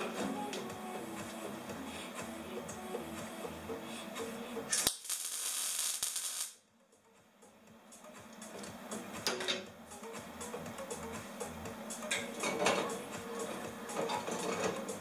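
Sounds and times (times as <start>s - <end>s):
welding arc crackling and hissing: 4.7s - 6.6s.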